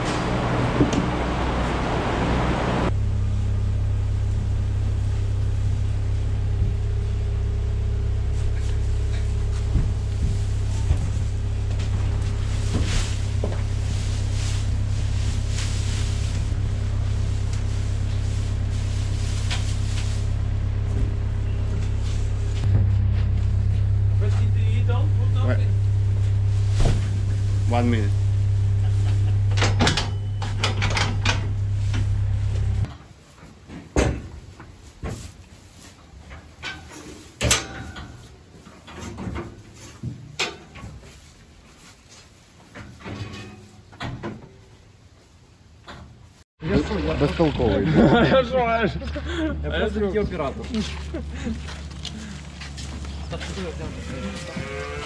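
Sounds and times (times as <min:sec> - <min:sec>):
engine idling: 0:00.0 - 0:32.9, 0:46.6 - 0:54.0
straw rustling: 0:07.8 - 0:20.9, 0:50.5 - 0:55.0
metal gates knocking and clattering: 0:36.6 - 0:38.3.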